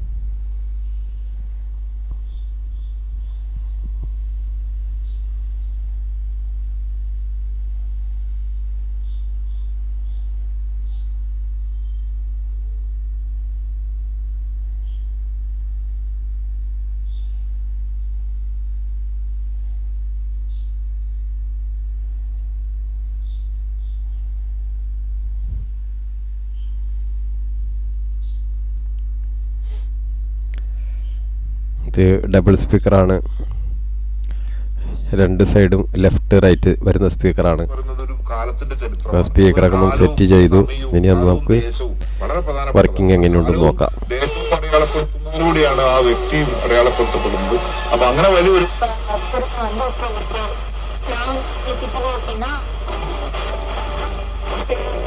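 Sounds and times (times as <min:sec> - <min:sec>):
electrical mains hum: 0:00.0 - 0:55.0
faint high chirps: 0:00.2 - 0:06.0, 0:08.0 - 0:13.0.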